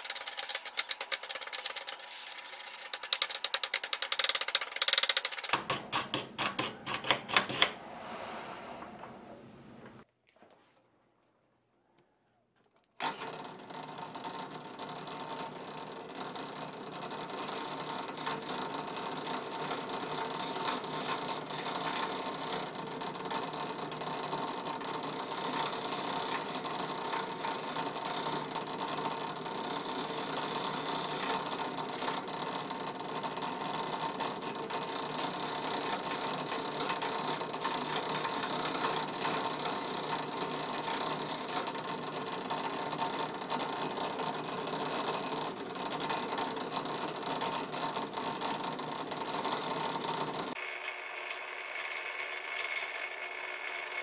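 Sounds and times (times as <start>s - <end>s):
drill press motor whir: 0.0s - 5.6s, 13.0s - 54.0s
wire wheel scrubbing metal: 0.0s - 9.0s, 17.2s - 22.6s, 34.8s - 41.7s.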